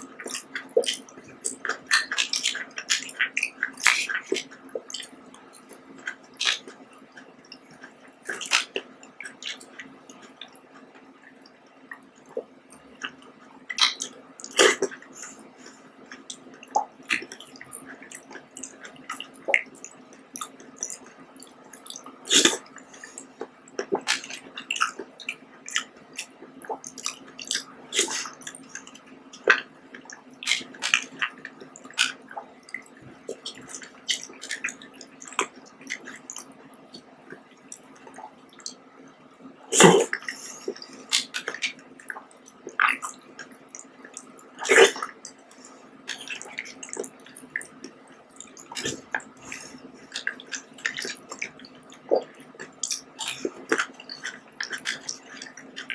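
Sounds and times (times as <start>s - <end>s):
wet mouth smacks and chewing: 16.1s - 38.8s, 39.8s - 45.4s, 46.1s - 55.9s.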